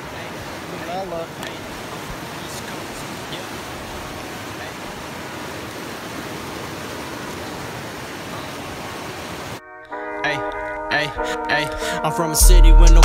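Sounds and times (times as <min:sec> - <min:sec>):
whitewater rapids roaring: 0:00.0 - 0:09.6
music: 0:09.6 - 0:13.0.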